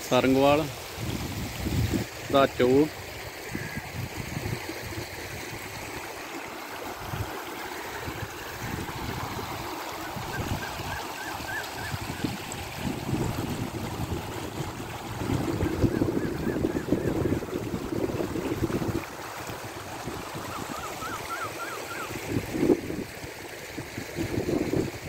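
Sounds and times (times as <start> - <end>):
floodwater rushing: 0.0 - 25.0.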